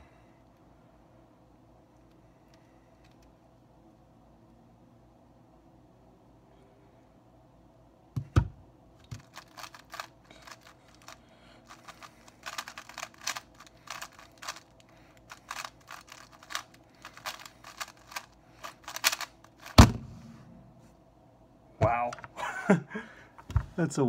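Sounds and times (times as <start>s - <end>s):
puzzle cube clicking: 9.1s - 19.8s.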